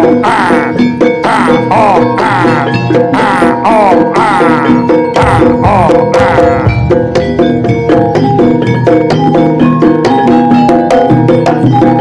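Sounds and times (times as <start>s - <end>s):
drums: 0.0s - 12.0s
gamelan music: 0.0s - 12.0s.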